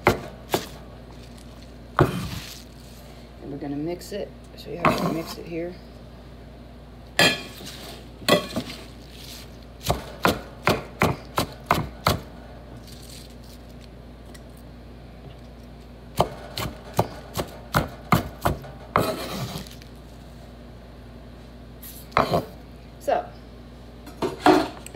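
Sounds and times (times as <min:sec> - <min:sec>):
knife chopping on wooden board: 0:00.0 - 0:00.8, 0:02.0 - 0:02.5, 0:09.8 - 0:12.3, 0:16.2 - 0:19.6.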